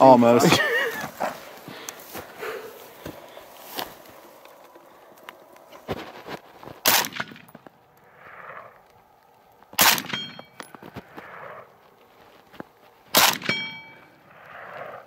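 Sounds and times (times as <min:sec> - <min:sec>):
rifle shots: 0:06.8 - 0:07.6, 0:09.8 - 0:10.6, 0:13.1 - 0:13.9
bullet ringing steel target: 0:09.8 - 0:10.6, 0:13.2 - 0:14.1.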